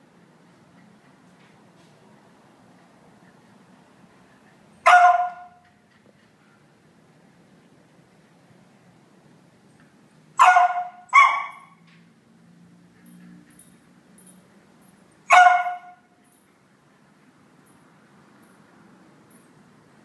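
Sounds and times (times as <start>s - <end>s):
dog barking: 4.8s - 5.6s, 10.4s - 11.8s, 15.3s - 16.0s.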